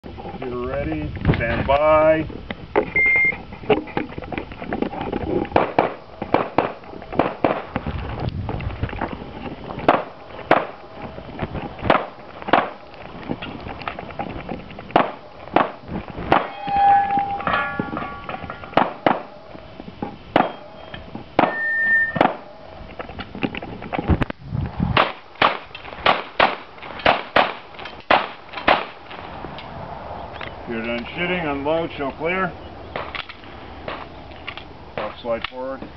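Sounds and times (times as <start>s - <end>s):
handgun shots: 9.9s - 10.8s, 15.0s - 16.5s, 21.4s - 22.5s, 25.0s - 29.0s
brief ringing tones: 16.5s - 18.3s, 20.5s - 22.2s.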